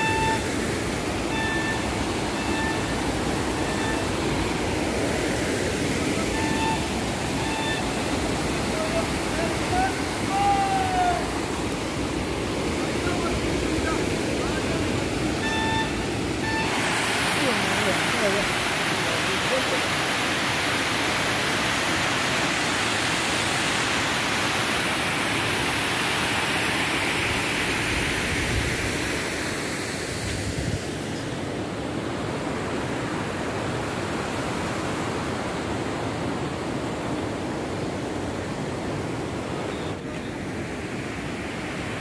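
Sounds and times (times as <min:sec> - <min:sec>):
water cascading down rock: 0:00.0 - 0:30.1.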